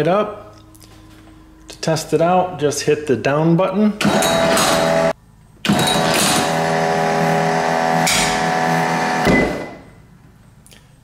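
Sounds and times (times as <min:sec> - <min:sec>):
electric winch motor running: 0:04.0 - 0:10.0.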